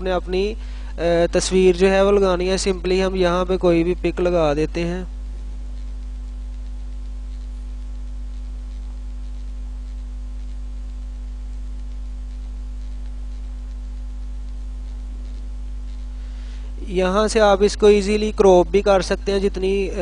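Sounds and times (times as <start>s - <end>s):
low electrical hum: 0.0s - 20.0s
recording hiss: 0.0s - 20.0s.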